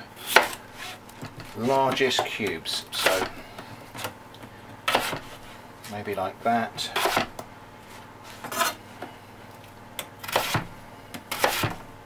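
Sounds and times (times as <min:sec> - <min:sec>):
knife chopping on plastic board: 0:00.3 - 0:00.6, 0:01.3 - 0:03.4, 0:04.9 - 0:05.4, 0:07.0 - 0:07.4, 0:10.3 - 0:11.8.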